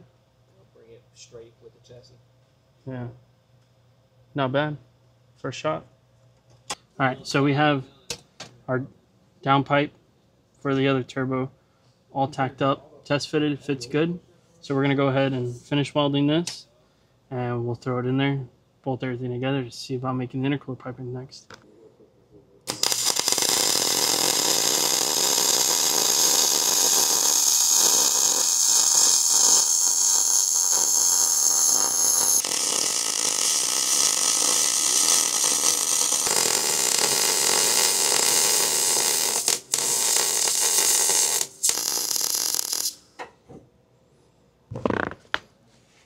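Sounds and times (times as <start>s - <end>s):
welding arc crackling and hissing: 22.7s - 43.1s.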